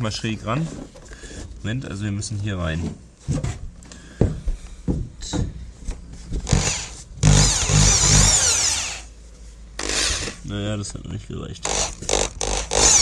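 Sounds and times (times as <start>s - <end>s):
power drill boring into wood: 6.4s - 9.1s, 9.8s - 10.4s, 11.6s - 13.0s.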